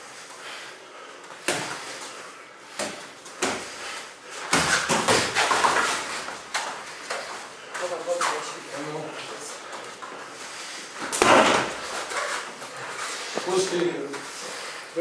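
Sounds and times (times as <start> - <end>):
boxing gloves punching: 11.1 - 11.9.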